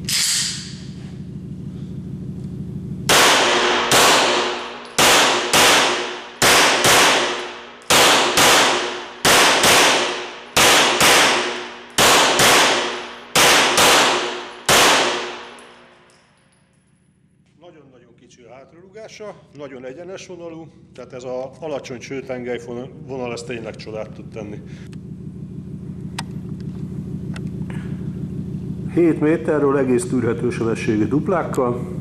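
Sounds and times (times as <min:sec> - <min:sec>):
pistol shots echoing indoors: 0:03.1 - 0:16.8.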